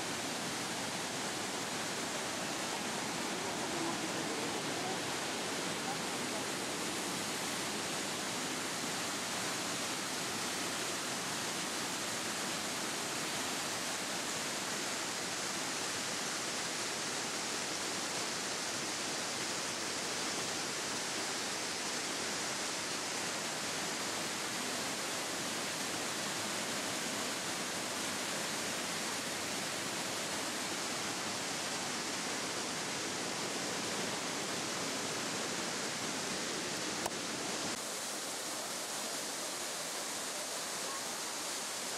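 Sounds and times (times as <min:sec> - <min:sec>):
waterfall rushing: 0:00.0 - 0:41.9.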